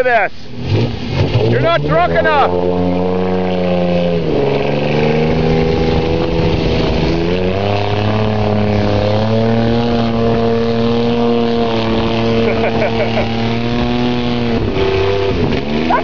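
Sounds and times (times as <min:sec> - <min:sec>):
truck engine running hard: 0:04.4 - 0:16.0.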